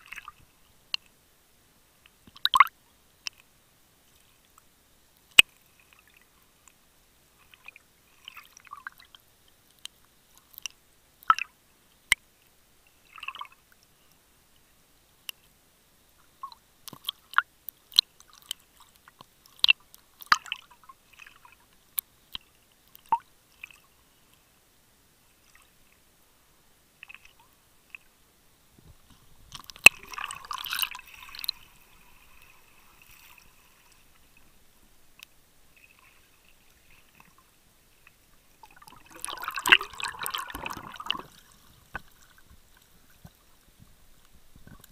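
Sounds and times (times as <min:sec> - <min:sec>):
underwater clicks and crackles: 0:00.0 - 0:01.2, 0:02.0 - 0:03.5, 0:07.4 - 0:12.6, 0:16.2 - 0:24.4, 0:27.0 - 0:28.1, 0:28.8 - 0:44.9.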